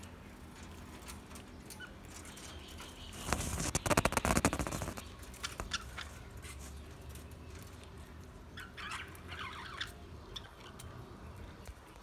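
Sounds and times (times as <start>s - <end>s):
budgerigars chirping: 8.6s - 10.7s.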